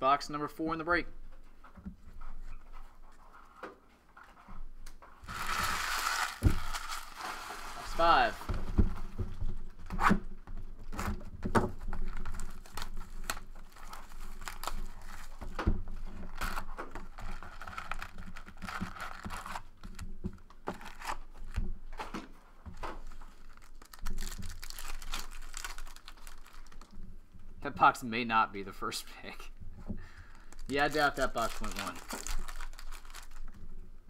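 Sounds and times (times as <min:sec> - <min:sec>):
wrapper tearing: 0:05.2 - 0:08.4, 0:12.0 - 0:15.4, 0:16.2 - 0:19.7, 0:23.0 - 0:27.0, 0:30.3 - 0:33.6
wrapper crinkling: 0:05.2 - 0:08.5, 0:11.9 - 0:15.5, 0:16.2 - 0:20.0, 0:23.0 - 0:27.2, 0:30.3 - 0:33.9.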